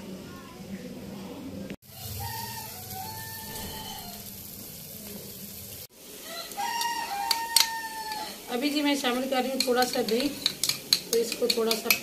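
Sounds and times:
rooster crowing: 1.8 - 4.4, 6.2 - 8.5
chicken sizzling in a pan: 1.8 - 12.0.

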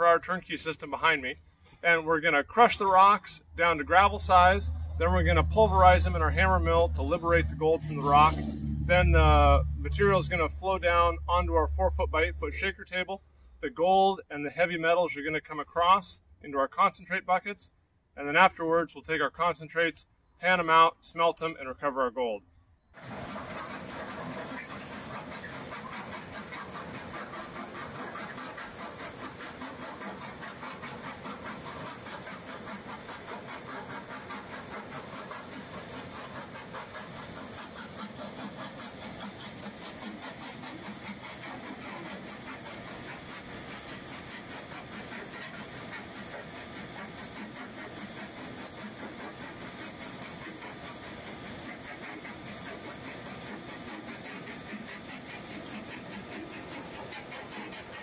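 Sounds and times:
pulsing mechanical drone: 2.5 - 12.9, 23.0 - 58.0.

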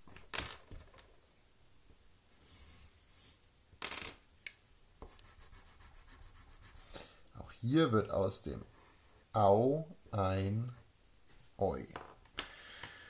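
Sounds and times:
pencil scratching on paper: 5.0 - 7.0.

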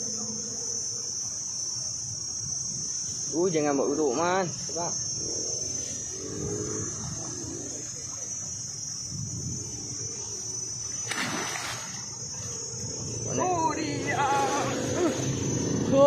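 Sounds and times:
high insect buzz: 0.0 - 16.0
sharp splash: 11.0 - 12.2
fish thrashing in water: 11.0 - 12.4.

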